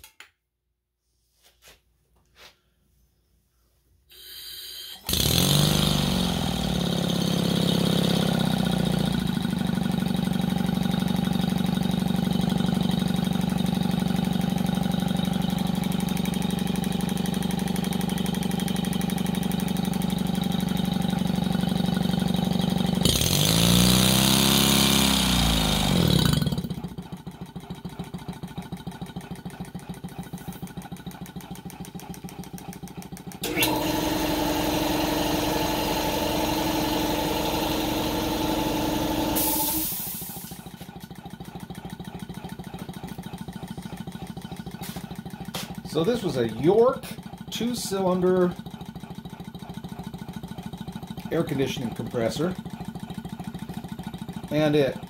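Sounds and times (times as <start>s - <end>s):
air-powered engine running: 33.4s - 41.1s, 42.8s - 46.8s.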